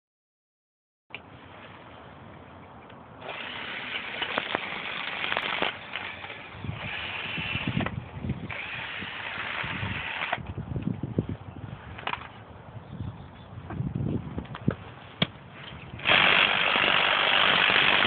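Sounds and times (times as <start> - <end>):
power drill boring into dirt: 3.2 - 10.4, 16.0 - 18.0.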